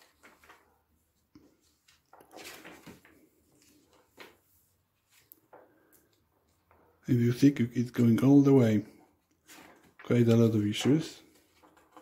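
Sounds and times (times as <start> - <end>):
pages turning: 0.0 - 6.8, 9.2 - 12.0.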